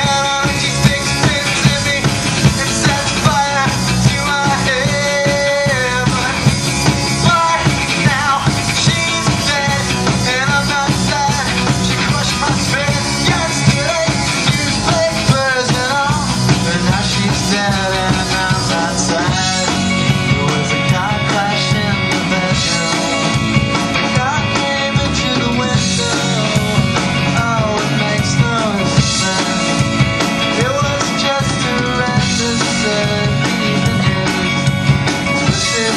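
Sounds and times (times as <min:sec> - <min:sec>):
rock band playing live: 0:00.0 - 0:35.9.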